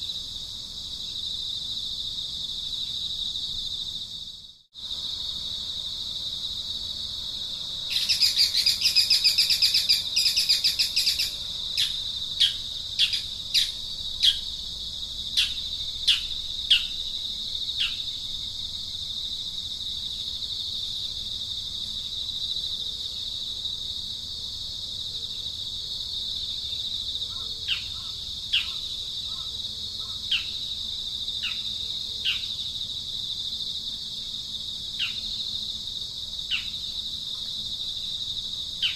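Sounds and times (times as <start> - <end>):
high-pitched insect drone: 2.6 - 24.4.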